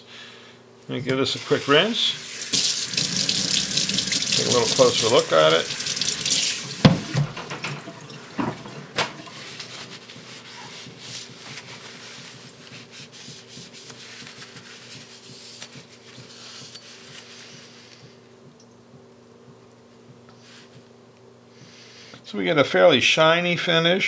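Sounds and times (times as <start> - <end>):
faint handling and rubbing: 9.3 - 18.1.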